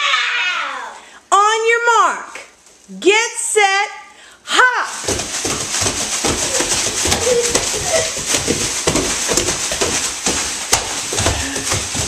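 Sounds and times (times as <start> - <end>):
plastic bags rustling: 4.9 - 12.0
thumps on wooden floor: 5.0 - 12.0.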